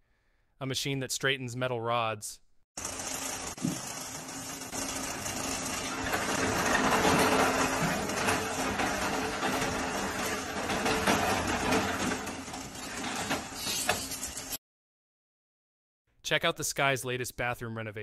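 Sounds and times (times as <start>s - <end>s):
machine motor hum: 2.8s - 13.6s.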